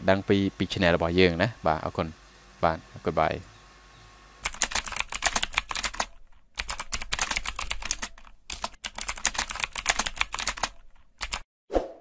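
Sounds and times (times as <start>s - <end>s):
computer keyboard typing: 4.4s - 11.4s.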